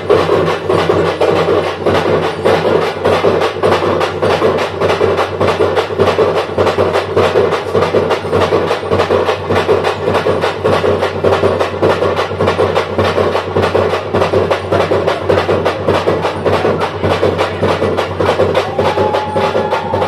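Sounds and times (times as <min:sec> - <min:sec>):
drum ensemble playing: 0:00.0 - 0:20.0.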